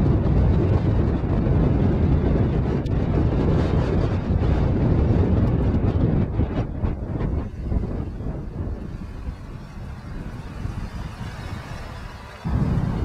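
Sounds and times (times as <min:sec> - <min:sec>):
wind buffeting microphone: 0:00.0 - 0:13.0
outboard motor running: 0:06.3 - 0:13.0.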